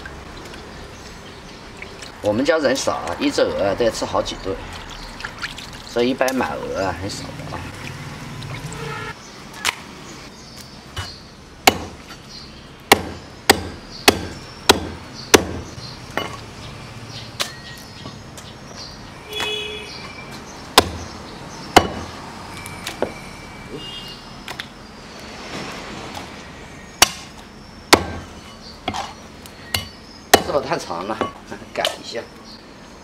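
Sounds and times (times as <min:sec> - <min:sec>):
cleaver chopping on wooden block: 0:11.0 - 0:12.1, 0:12.9 - 0:16.4, 0:20.8 - 0:21.1, 0:21.8 - 0:22.1, 0:27.0 - 0:28.3, 0:29.8 - 0:30.6.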